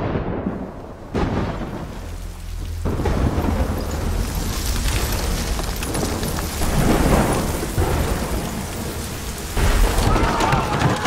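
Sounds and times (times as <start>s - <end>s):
loud thunder crack: 0.0s - 5.0s
heavy rain pouring: 0.0s - 11.0s
thunder rumbling: 0.0s - 11.0s.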